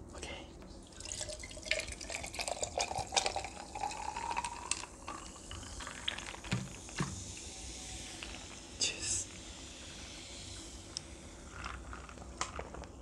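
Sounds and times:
soda pouring into glass: 0:00.9 - 0:08.8
fizz crackling: 0:01.6 - 0:13.0.

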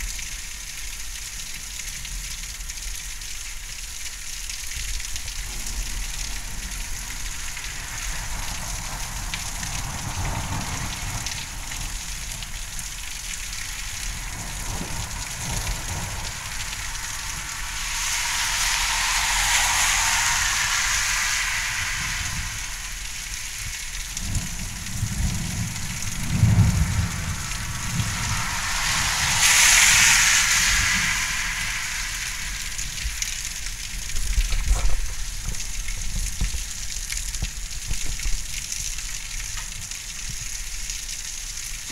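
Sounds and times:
heavy rain falling: 0:00.0 - 0:41.9
low rumble of thunder: 0:05.2 - 0:38.7.

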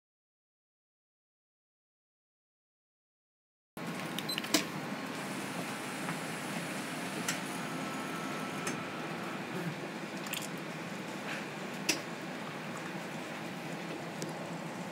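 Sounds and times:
coffee machine noise: 0:03.8 - 0:14.9.

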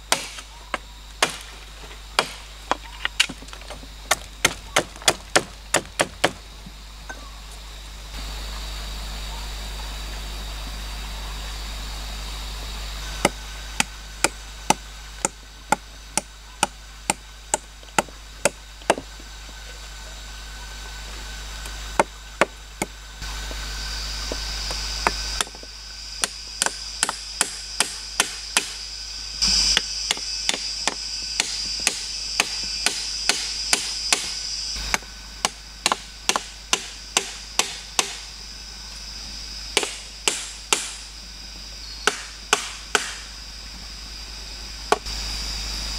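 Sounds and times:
pegs hammered into log: 0:00.1 - 0:01.6, 0:02.2 - 0:06.4, 0:26.2 - 0:28.8, 0:30.1 - 0:34.4, 0:35.4 - 0:38.2, 0:39.8 - 0:41.0, 0:42.0 - 0:43.3.

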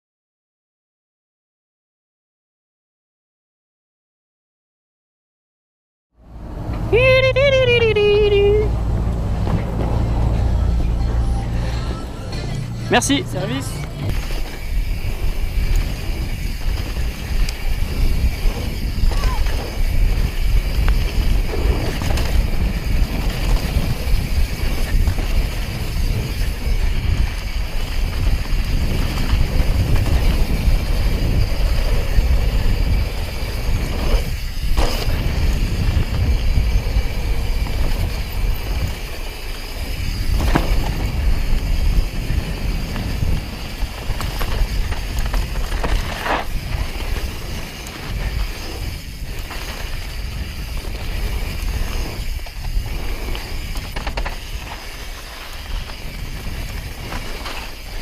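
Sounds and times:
tyres rumbling on dirt: 0:06.3 - 0:58.0
wind rushing over microphone: 0:06.3 - 0:58.0
sharp knocks from bike: 0:40.3 - 0:41.2.

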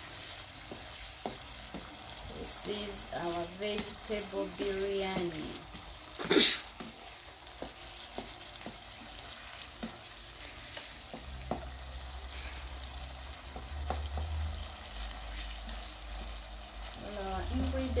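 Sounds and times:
vegetables frying in a pan: 0:00.0 - 0:18.0
wooden spoon knocking a pan: 0:00.6 - 0:02.1, 0:05.0 - 0:10.1, 0:11.0 - 0:11.8, 0:13.4 - 0:14.4.

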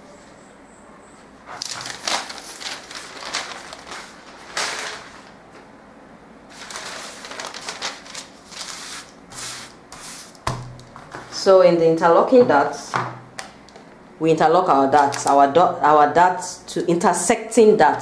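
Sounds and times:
paper rustling and crackling: 0:01.5 - 0:05.7, 0:06.5 - 0:10.3.

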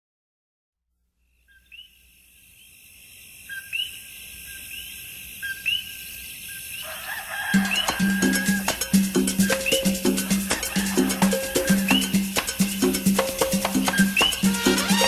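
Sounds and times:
frogs calling: 0:01.4 - 0:14.5
salsa music with bass and maracas: 0:07.4 - 0:15.0.

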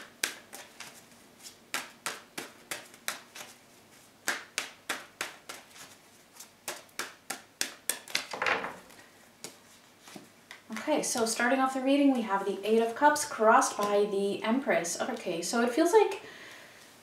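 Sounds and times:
cards shuffling with snaps: 0:00.0 - 0:03.6, 0:04.2 - 0:10.6.

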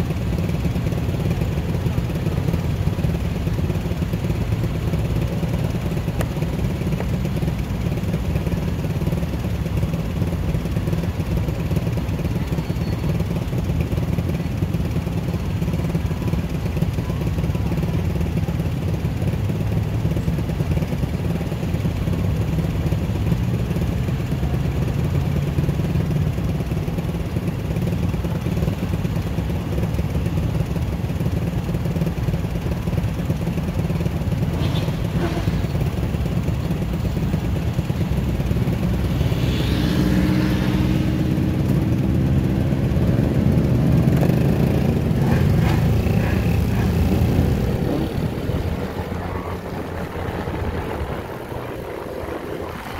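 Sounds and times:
scooter engine running: 0:00.0 - 0:52.9.

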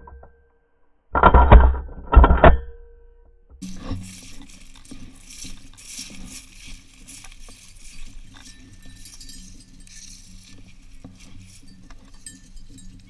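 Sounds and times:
footsteps in dry grass: 0:03.6 - 0:13.0.

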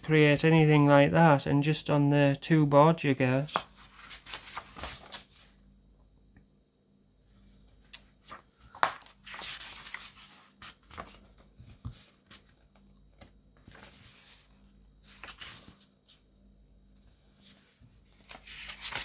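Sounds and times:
paper crackling and rustling: 0:03.5 - 0:05.5, 0:08.2 - 0:16.2, 0:17.3 - 0:19.0
paper pages turning: 0:03.5 - 0:05.5, 0:08.1 - 0:16.2, 0:17.4 - 0:19.0.

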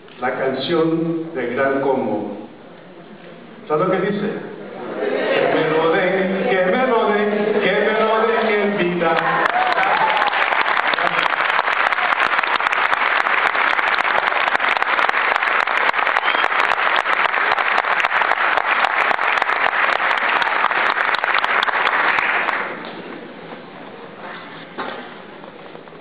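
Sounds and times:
audience applauding: 0:09.1 - 0:23.0.

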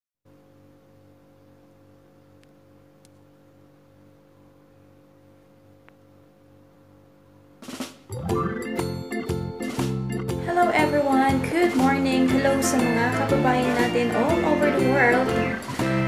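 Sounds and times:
background music with drums: 0:07.6 - 0:16.0.

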